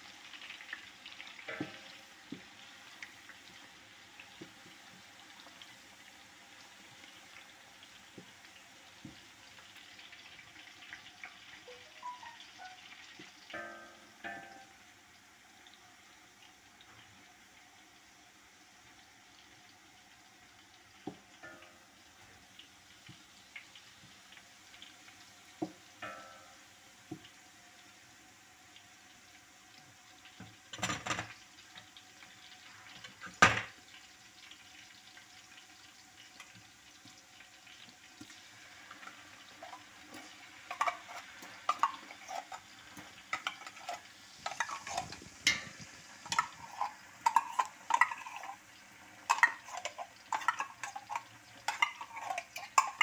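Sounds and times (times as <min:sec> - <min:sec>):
onions sizzling in oil: 0:00.0 - 0:53.0
spoon clicks and scrapes: 0:39.6 - 0:48.6, 0:49.3 - 0:53.0.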